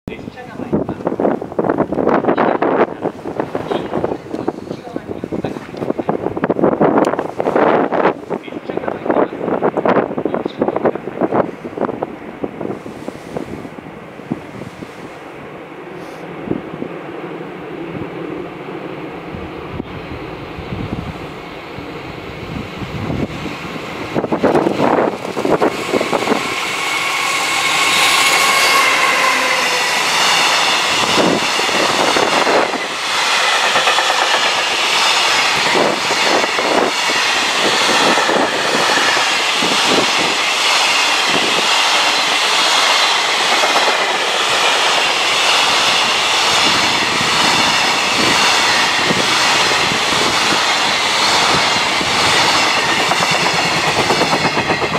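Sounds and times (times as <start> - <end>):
train rumbling past: 0.1 - 54.9
wheels clacking over rail joints: 24.3 - 54.9.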